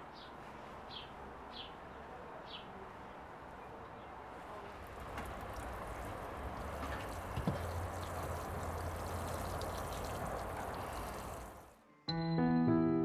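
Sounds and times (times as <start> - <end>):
water sprinkling from watering can: 4.8 - 11.8.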